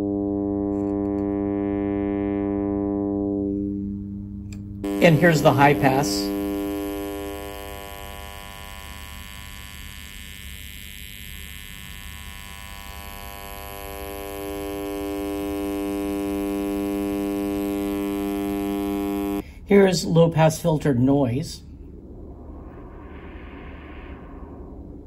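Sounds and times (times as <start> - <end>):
buzzy filtered test tone: 0.0 - 19.5, 21.7 - 25.0.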